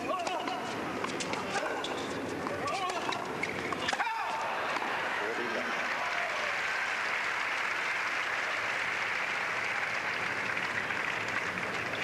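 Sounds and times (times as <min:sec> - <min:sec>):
crowd applauding: 0:04.3 - 0:12.0.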